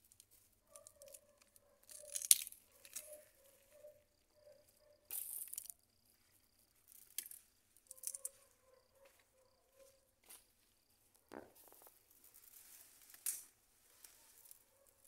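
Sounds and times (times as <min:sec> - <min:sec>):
plants rustling and tearing: 0:11.3 - 0:14.6.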